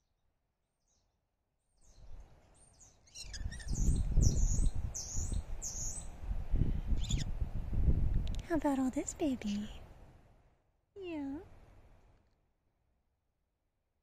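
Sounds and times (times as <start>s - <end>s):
bird chirping: 0.0s - 6.2s, 6.9s - 7.3s
wind buffeting microphone: 3.2s - 10.2s.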